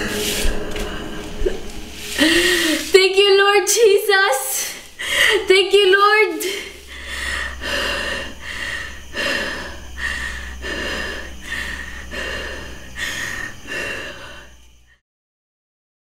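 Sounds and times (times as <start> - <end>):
low steady hum: 0.0 - 15.0
woman panting: 0.1 - 2.9, 4.5 - 5.6, 6.4 - 14.9.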